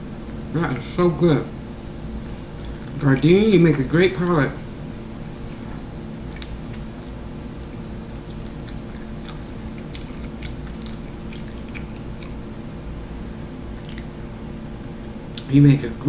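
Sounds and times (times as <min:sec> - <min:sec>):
low room hum: 0:00.0 - 0:16.0
mouth clicks and smacks: 0:02.5 - 0:03.0, 0:06.3 - 0:12.5, 0:13.2 - 0:14.2, 0:15.3 - 0:15.5
person chewing: 0:02.5 - 0:03.2, 0:06.3 - 0:12.6, 0:13.2 - 0:14.3.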